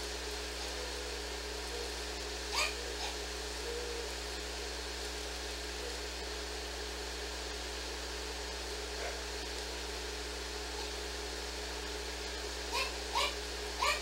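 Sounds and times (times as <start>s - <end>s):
steady hiss and low hum: 0.0s - 14.0s
dog yelping: 2.5s - 3.2s, 12.7s - 14.0s.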